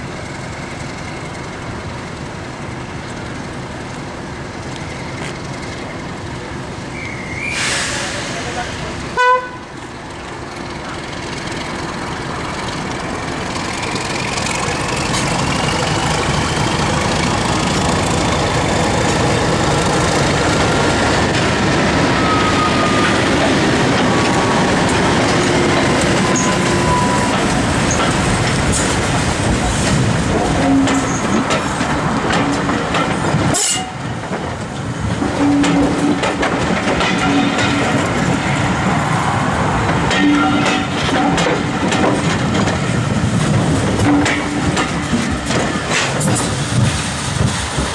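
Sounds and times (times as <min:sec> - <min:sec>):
diesel locomotive engine: 0:00.0 - 0:47.9
train wheels clicking over rail joints: 0:09.8 - 0:47.9.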